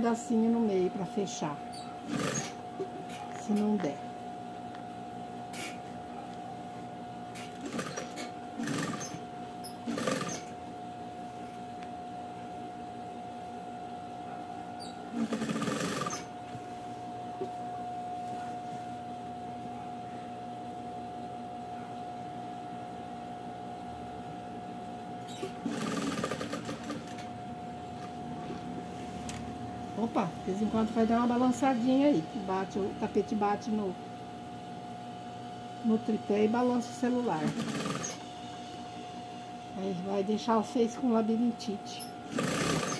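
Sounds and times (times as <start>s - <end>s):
sewing machine humming: 2.0s - 2.6s, 7.3s - 10.6s, 15.1s - 16.4s, 25.4s - 27.3s, 37.1s - 38.3s, 42.2s - 42.9s.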